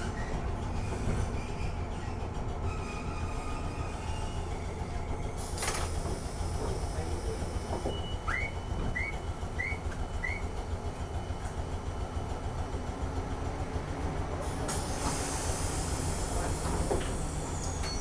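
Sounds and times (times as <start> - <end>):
tram rumbling on rails: 0.0 - 18.0
short rising squeaks: 0.8 - 5.2.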